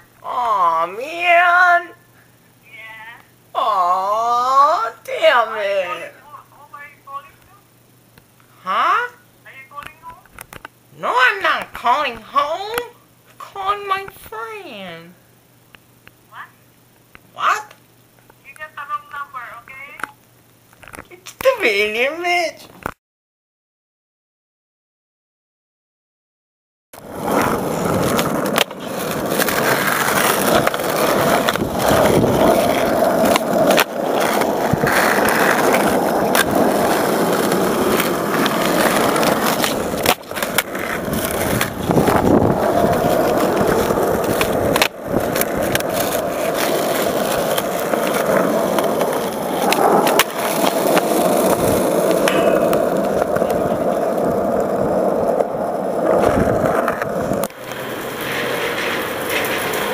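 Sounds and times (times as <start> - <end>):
skateboard tail clacks: 27.0 - 59.9
skateboard wheels rolling on asphalt: 27.0 - 59.9.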